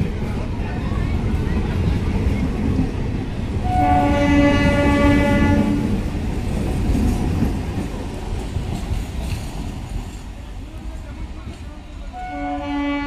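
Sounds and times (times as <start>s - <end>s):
train rumbling: 0.0s - 13.0s
electric train horn blast: 3.6s - 6.0s, 12.1s - 13.0s.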